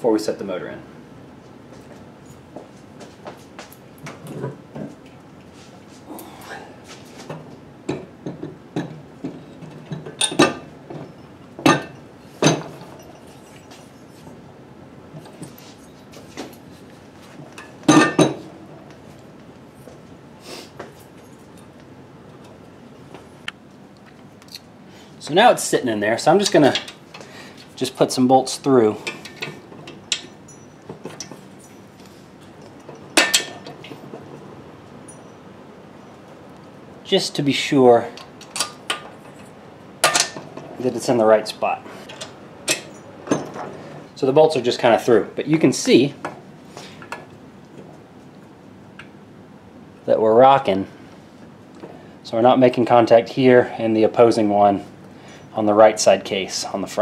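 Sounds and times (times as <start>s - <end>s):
metal knocks and clinks: 7.9s - 14.2s, 29.0s - 36.2s
steel bolts clinking against metal: 9.6s - 14.1s, 26.4s - 27.2s, 29.0s - 31.9s, 32.6s - 34.0s, 38.2s - 40.6s, 42.1s - 43.7s.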